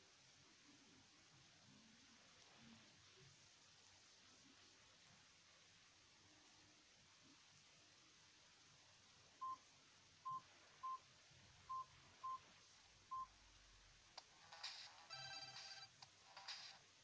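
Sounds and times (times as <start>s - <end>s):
phone ringtone: 14.6s - 16.7s.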